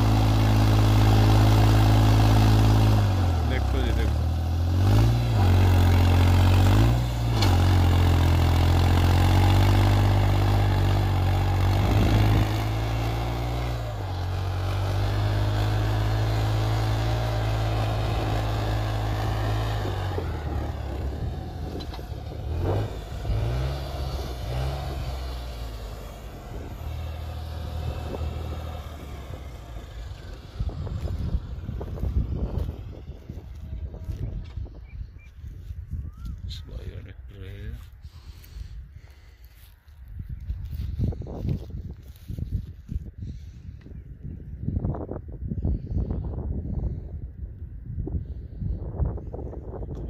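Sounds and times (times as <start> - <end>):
tractor diesel engine under load: 0.0 - 34.8.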